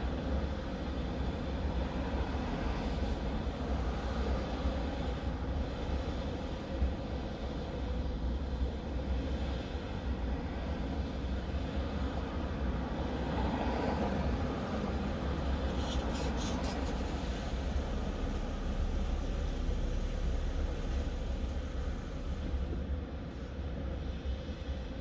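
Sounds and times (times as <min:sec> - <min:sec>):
low rumble: 0:17.5 - 0:22.9.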